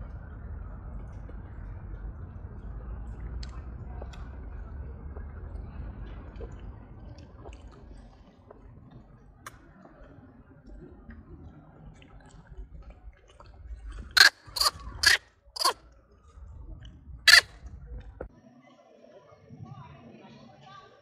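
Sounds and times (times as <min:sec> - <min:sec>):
faint low background noise: 0:00.0 - 0:21.0
harsh animal calls: 0:14.2 - 0:15.8, 0:17.3 - 0:17.6.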